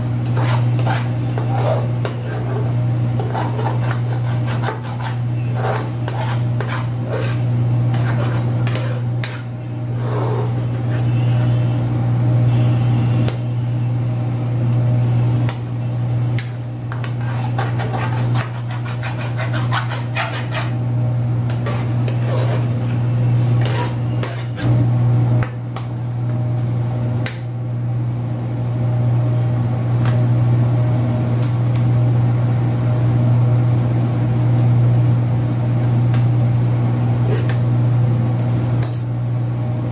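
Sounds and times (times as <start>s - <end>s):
loud low hum: 0.0s - 38.5s
metal spoon scraping frying pan: 0.3s - 11.2s, 16.9s - 20.8s, 21.5s - 22.8s, 23.6s - 24.8s.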